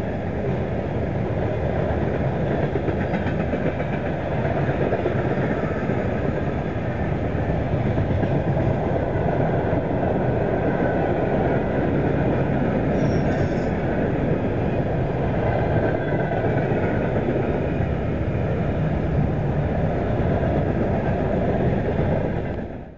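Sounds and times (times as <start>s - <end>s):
freight train wheels rumbling on rails: 0.0s - 22.9s.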